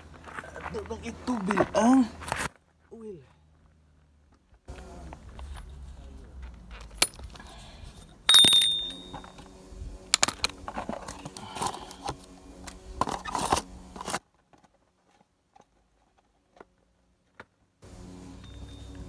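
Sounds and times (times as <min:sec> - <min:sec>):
metal tools clinking: 0:06.8 - 0:07.4, 0:08.3 - 0:09.4.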